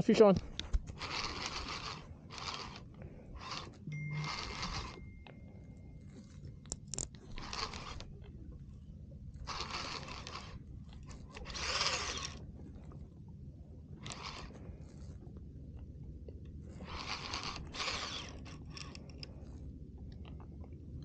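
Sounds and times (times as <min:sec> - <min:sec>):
fishing reel whirring: 0:00.8 - 0:06.6, 0:07.2 - 0:08.2, 0:09.3 - 0:12.6, 0:13.9 - 0:14.9, 0:16.7 - 0:19.7.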